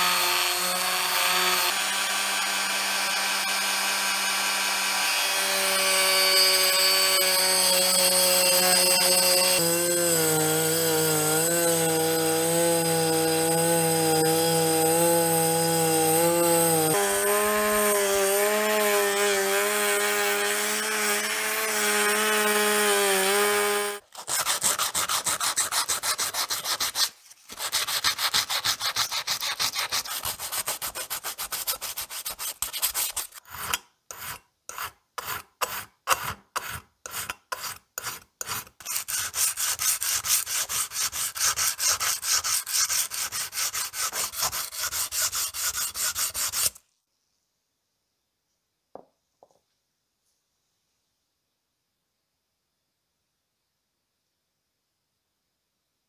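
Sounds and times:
rotary tool whining: 0.0s - 24.0s
brass being hand-sanded: 5.3s - 46.8s.

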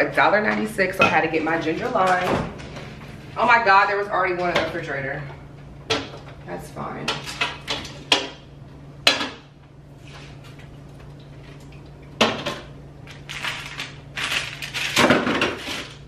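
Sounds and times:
low steady hum: 0.0s - 16.0s
items knocking on fridge shelves: 14.8s - 15.9s.

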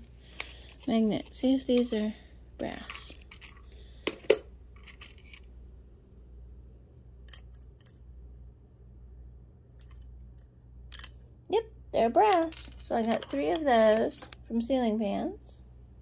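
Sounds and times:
metal chains clinking: 7.3s - 8.1s, 9.8s - 11.3s.

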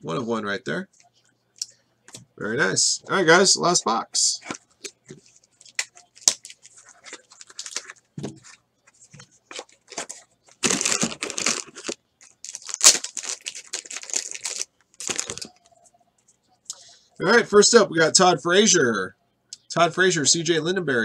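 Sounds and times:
plastic wrap crinkling: 4.4s - 15.7s.

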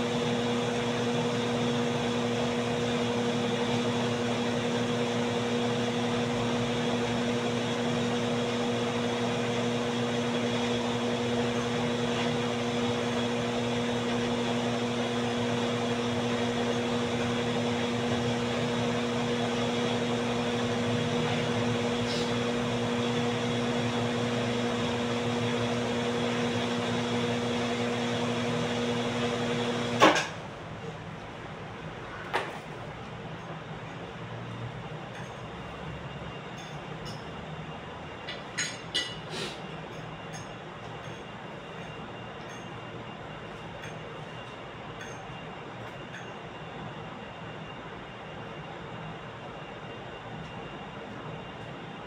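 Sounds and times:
electric fan whirring: 0.0s - 35.0s.

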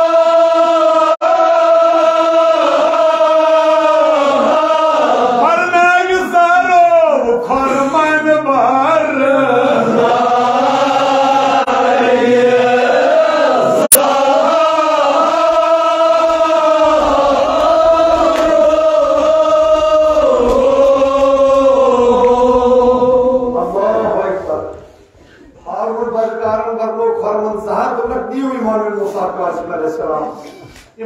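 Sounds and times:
man chanting an elegy: 5.4s - 9.8s.

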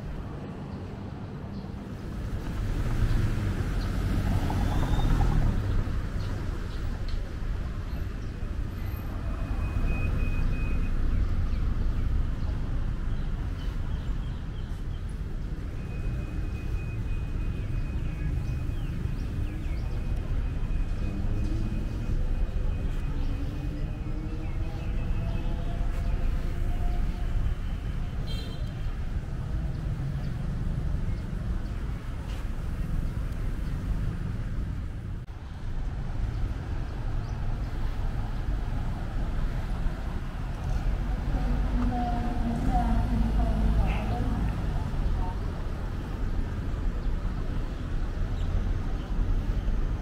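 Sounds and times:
low rumble of passing traffic: 0.0s - 50.0s.

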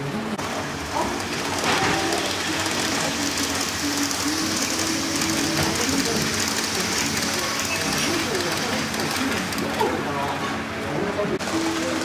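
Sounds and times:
model train wheels hissing on rails: 1.1s - 9.6s.

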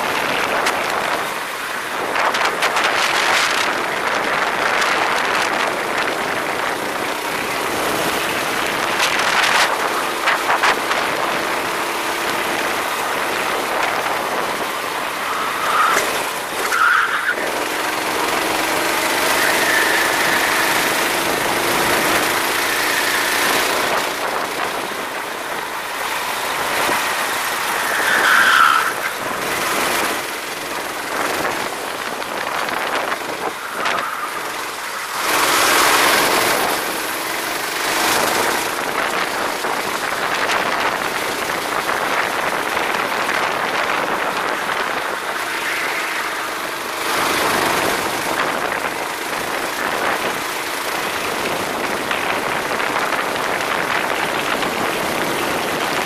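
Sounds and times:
go-kart engine revving: 0.0s - 56.0s
wind rushing: 17.4s - 37.2s.

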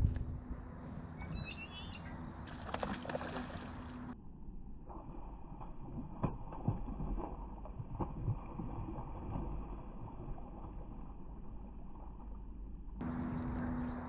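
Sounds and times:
low rumble: 0.0s - 2.6s
fish splashing in water: 2.4s - 4.2s, 5.0s - 12.2s.

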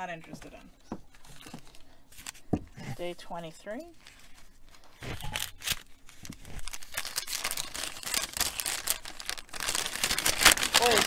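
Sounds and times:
paper bag crinkling: 4.0s - 11.0s.

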